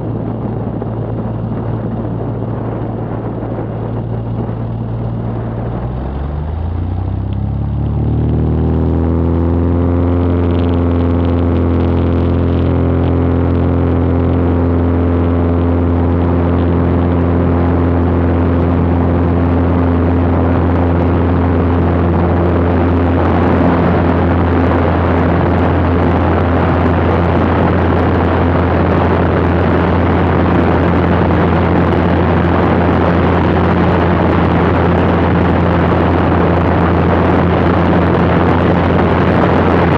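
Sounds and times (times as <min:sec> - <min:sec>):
propeller plane engine: 0:00.0 - 0:39.9
rush of air noise: 0:00.0 - 0:39.9.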